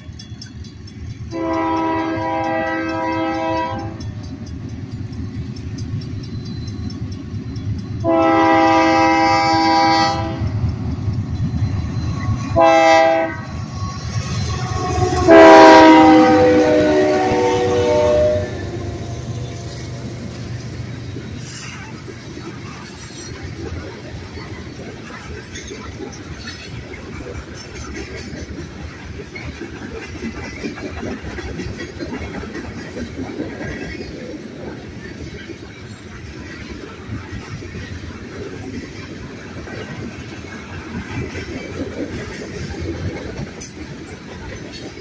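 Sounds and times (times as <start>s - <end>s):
locomotive horn blasts: 1.3s - 4.0s, 8.0s - 10.5s, 12.6s - 13.5s, 14.4s - 19.2s
freight cars rumbling and clattering: 18.6s - 45.0s.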